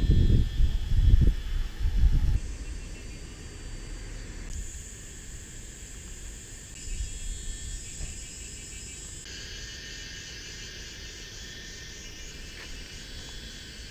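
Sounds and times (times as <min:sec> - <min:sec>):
wind rumble on microphone: 0:00.0 - 0:02.8
insects chorus: 0:00.0 - 0:13.9.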